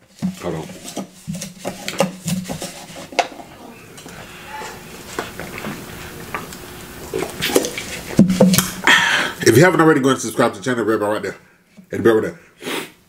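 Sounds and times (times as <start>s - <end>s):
person drinking from a cup: 3.3s - 8.9s.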